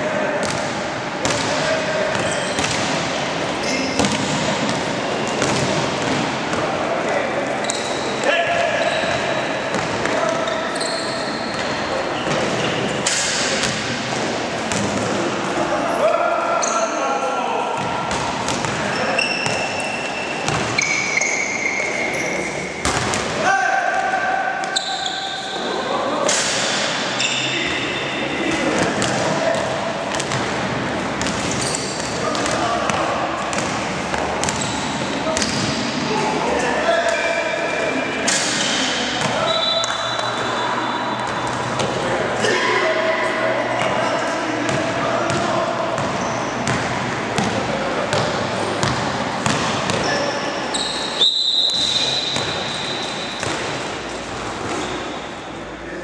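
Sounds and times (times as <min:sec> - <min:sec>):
basketball bouncing on court: 0:00.4 - 0:03.1, 0:03.9 - 0:06.7, 0:14.7 - 0:15.0, 0:17.8 - 0:19.7, 0:20.4 - 0:20.9, 0:22.8 - 0:23.4, 0:28.5 - 0:35.9, 0:44.7 - 0:50.1, 0:51.8 - 0:52.7, 0:53.3 - 0:53.8
short high squeaks: 0:10.5 - 0:11.8
referee whistle blast: 0:50.8 - 0:53.1.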